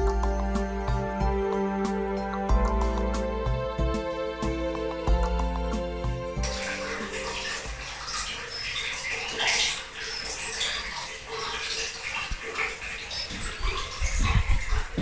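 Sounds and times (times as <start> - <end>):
outdoor hiss: 5.8 - 14.1
small birds chirping: 7.3 - 11.4.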